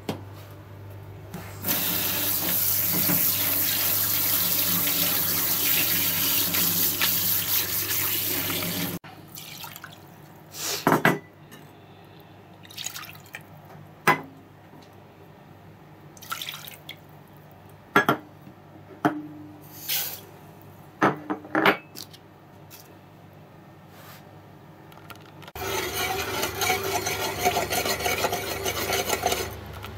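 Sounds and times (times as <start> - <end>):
tap water spraying into strainer: 1.6 - 9.0.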